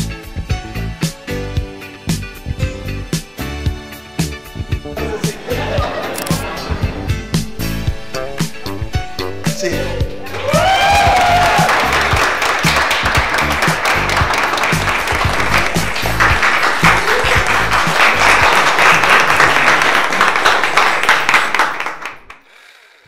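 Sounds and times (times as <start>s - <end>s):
background music with steady beat: 0.0s - 20.2s
crowd applauding: 10.2s - 22.8s.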